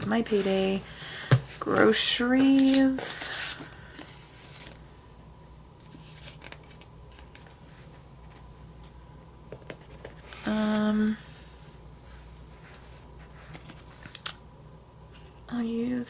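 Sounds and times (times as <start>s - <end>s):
steady hum: 0.0s - 16.0s
sticker sheets rustling: 1.6s - 4.8s.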